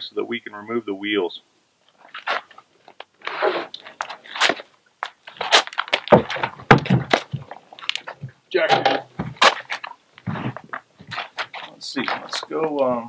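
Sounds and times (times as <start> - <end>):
scrapes creaks and knocks: 1.9 - 12.6
heavy thumps: 5.2 - 12.5.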